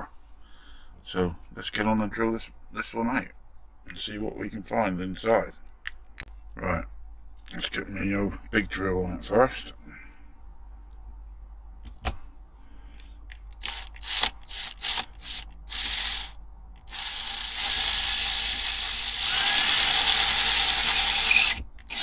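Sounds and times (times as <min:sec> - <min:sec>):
cordless drill whining: 0:13.6 - 0:22.0.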